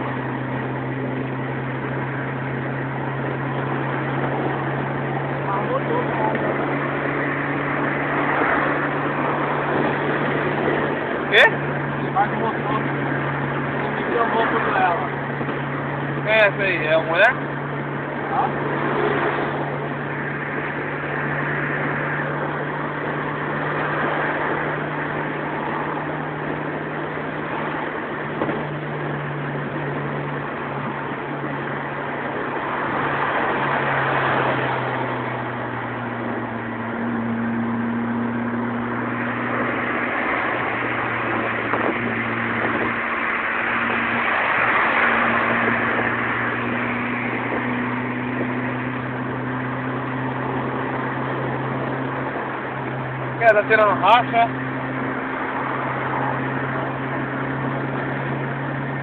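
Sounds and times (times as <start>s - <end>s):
car engine droning: 0.0s - 59.0s
wind and tyre noise: 0.0s - 59.0s.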